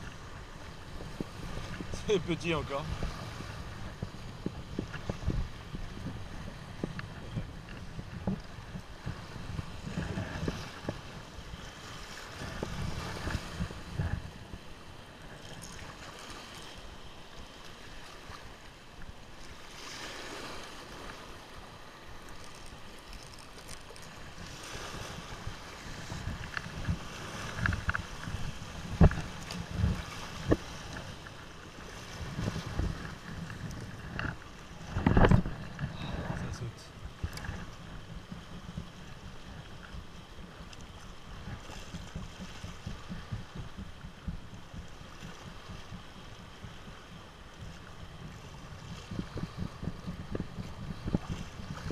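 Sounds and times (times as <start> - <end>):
wind buffeting microphone: 0.0 - 16.8, 24.1 - 51.9
surf breaking on rocks: 0.1 - 14.6.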